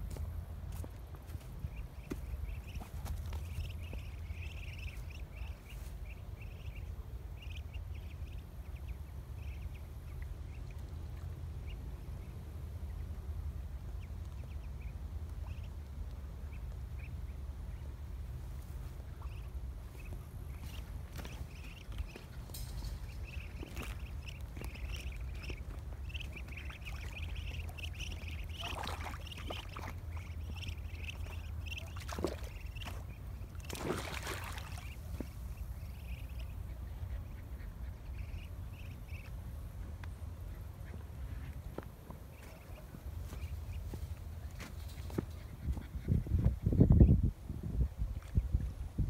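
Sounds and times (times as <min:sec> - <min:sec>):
ducklings peeping: 0:00.0 - 0:49.0
soft duck calls: 0:23.3 - 0:44.0
water splashing: 0:26.2 - 0:35.3.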